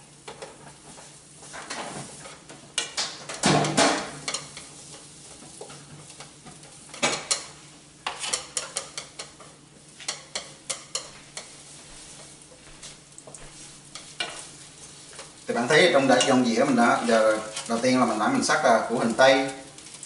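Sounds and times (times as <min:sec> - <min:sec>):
onion sizzling in hot oil: 0:00.0 - 0:20.0
chopsticks clattering against pan: 0:08.1 - 0:11.5.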